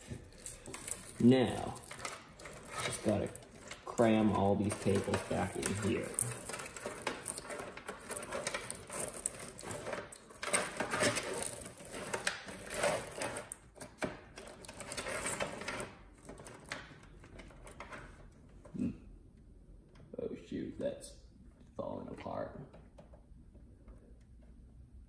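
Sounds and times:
cables rustling and scraping: 0.0s - 19.0s.

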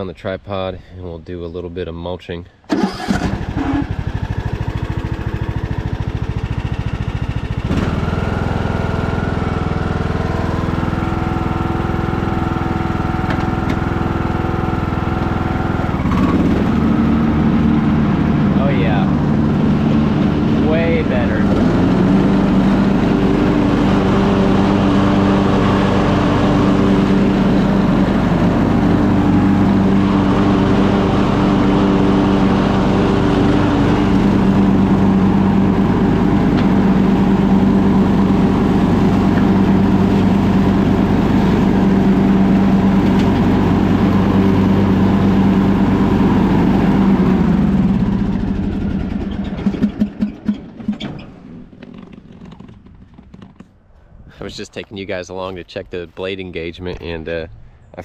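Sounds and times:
riding mower engine running: 2.7s - 54.5s
engine sputtering pops: 49.0s - 53.8s.

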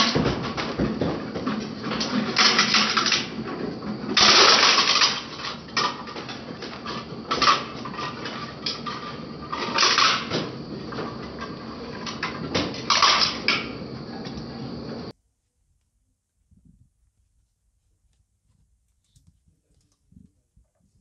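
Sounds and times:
shredder crunching plastic: 0.0s - 10.4s
shredder running: 0.0s - 15.0s.

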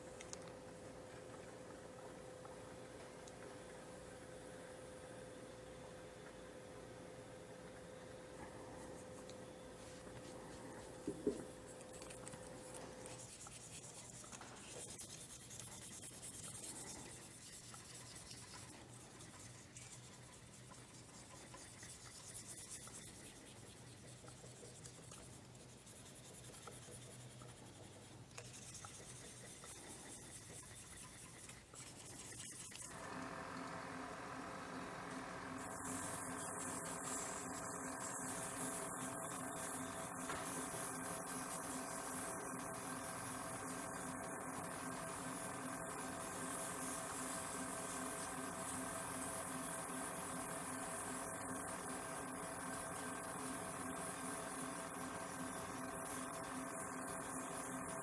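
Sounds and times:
pad rubbing on turning wood: 9.8s - 32.9s, 35.6s - 58.0s.

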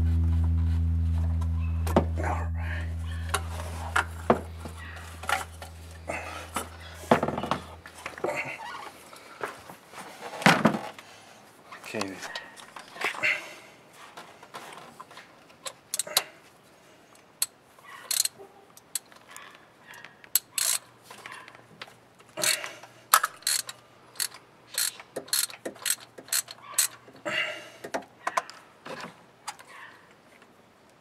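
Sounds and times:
ratchet wrench clicking: 18.1s - 18.3s, 20.4s - 20.8s, 23.2s - 27.0s.

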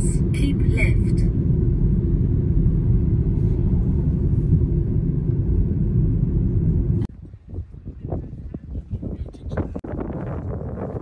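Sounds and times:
road and engine rumble inside car: 0.0s - 7.1s.

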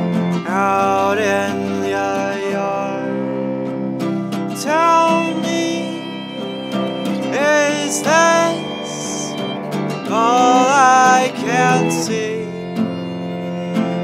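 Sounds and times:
strummed acoustic guitar: 0.0s - 14.0s
man singing: 0.4s - 3.5s, 4.5s - 6.4s, 7.2s - 9.5s, 10.1s - 12.8s.

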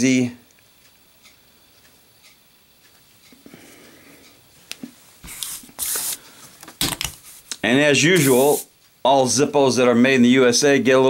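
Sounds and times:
gloves rustling: 5.2s - 7.6s
rubbing noise: 8.2s - 8.7s.

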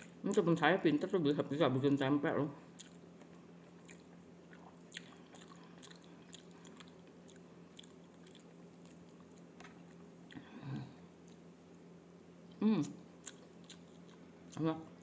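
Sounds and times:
steady low hum: 0.0s - 15.0s
person chewing food: 2.7s - 11.5s, 12.5s - 14.6s.

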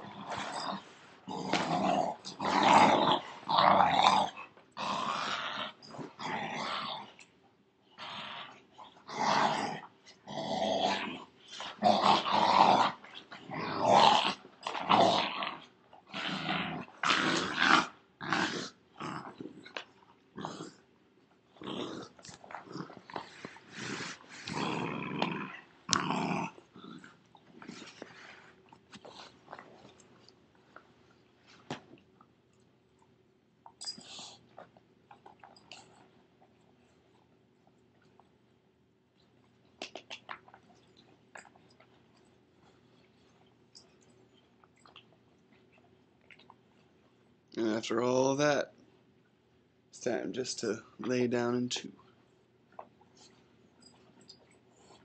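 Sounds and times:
dogs growling in play: 0.0s - 30.8s.

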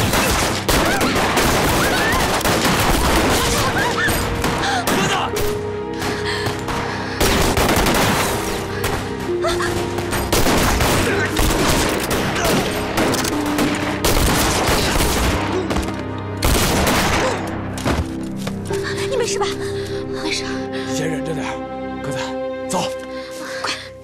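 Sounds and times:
rapid gunfire: 0.0s - 3.8s, 6.7s - 8.5s, 10.3s - 15.4s, 16.4s - 17.2s
background music: 0.0s - 24.0s.

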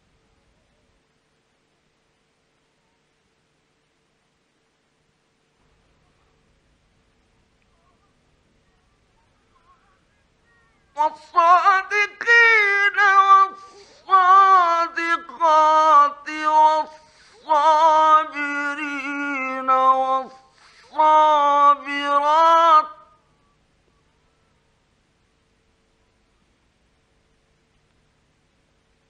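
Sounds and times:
man chanting melodically: 9.6s - 23.1s.

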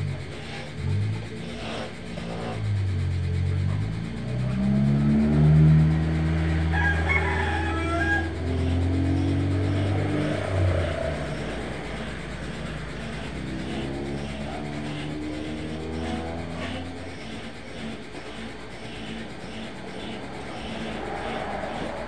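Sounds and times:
vehicle engine running: 0.0s - 22.0s
vehicle driving past: 2.2s - 17.2s, 19.2s - 22.0s
rooster crowing: 6.0s - 12.0s.

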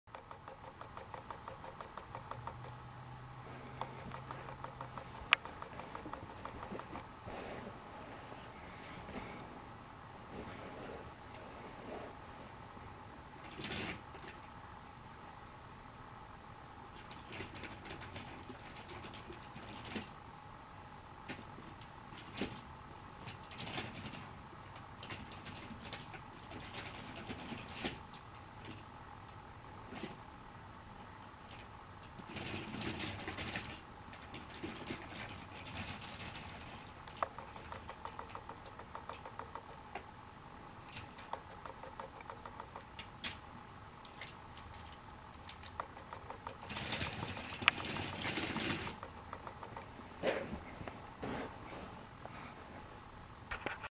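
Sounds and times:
toy train wheels clicking and rattling: 0.1s - 2.9s, 3.7s - 7.0s, 31.5s - 40.0s, 40.8s - 43.4s, 44.0s - 50.0s.

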